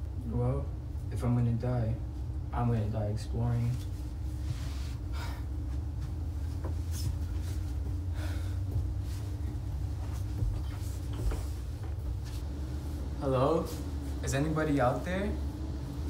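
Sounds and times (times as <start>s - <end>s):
steady low hum: 0.0s - 16.0s
rustling and shuffling: 2.1s - 16.0s
man breathing: 4.7s - 5.9s, 7.0s - 11.1s.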